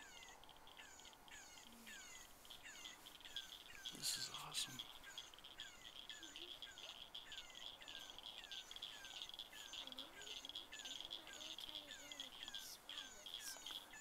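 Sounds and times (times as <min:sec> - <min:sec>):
high pulsing trill: 0:00.0 - 0:14.0.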